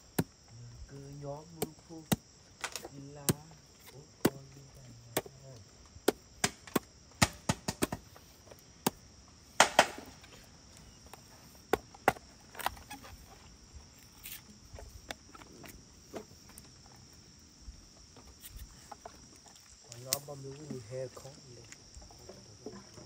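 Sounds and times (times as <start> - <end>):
crickets and insects droning: 0.0 - 23.0
blade chopping wood: 1.6 - 4.4, 6.0 - 8.0, 9.6 - 10.1.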